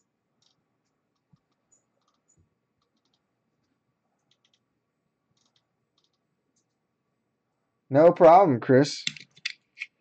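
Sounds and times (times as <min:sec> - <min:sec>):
faint clicks: 0:00.4 - 0:04.7, 0:05.3 - 0:06.8.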